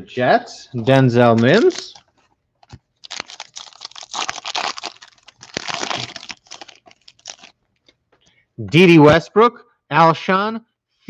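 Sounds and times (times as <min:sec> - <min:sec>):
plastic wrapper crinkling: 0:01.2 - 0:08.0.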